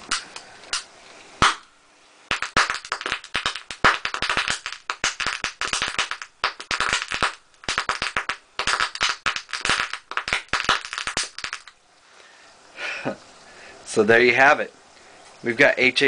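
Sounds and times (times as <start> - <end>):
gas bubbles popping sharply: 2.3 - 11.7.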